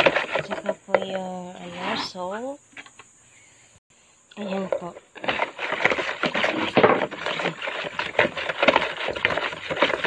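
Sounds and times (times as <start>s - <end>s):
liquid swishing: 0.0s - 0.8s, 5.2s - 10.0s
whisk clattering in plastic bowl: 0.0s - 1.0s, 5.2s - 10.0s.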